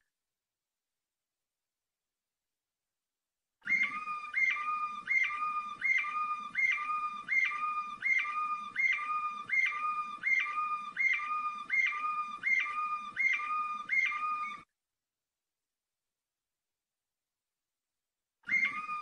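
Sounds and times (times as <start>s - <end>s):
canary singing: 3.7s - 14.6s.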